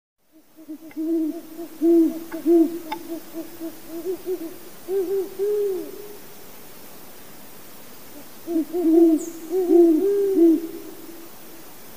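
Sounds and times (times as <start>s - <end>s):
owl hooting: 0.3s - 6.2s, 8.4s - 11.0s.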